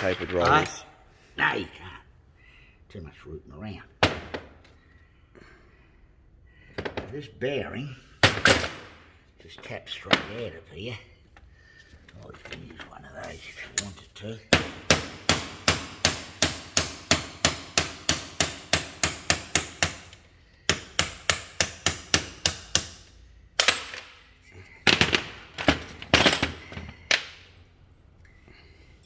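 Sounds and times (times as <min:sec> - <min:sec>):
hammer tapping on metal: 0:14.5 - 0:23.0.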